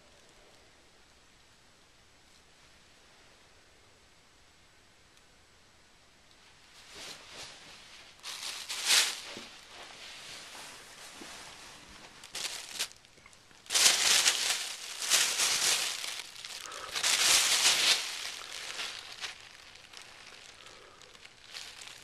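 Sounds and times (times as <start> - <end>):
plastic bag crinkling: 8.2 - 22.0.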